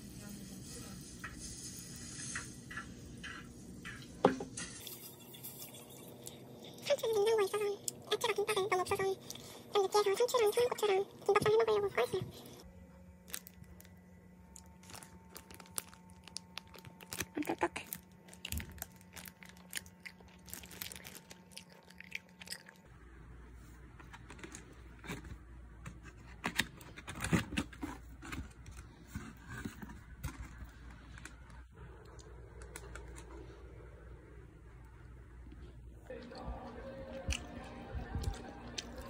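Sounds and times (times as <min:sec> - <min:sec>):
person chewing crunchy food: 0:13.3 - 0:22.9.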